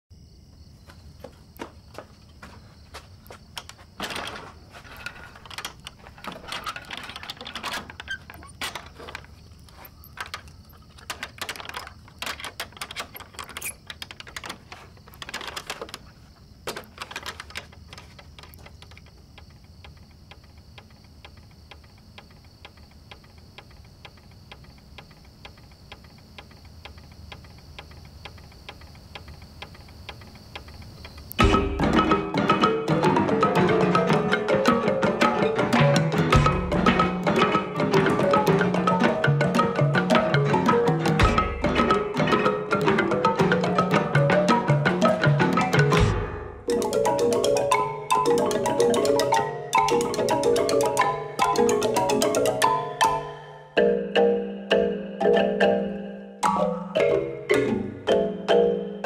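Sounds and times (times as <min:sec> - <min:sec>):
irregular clicks and rattles: 0:03.3 - 0:53.4
fast even ticking: 0:16.8 - 0:54.4.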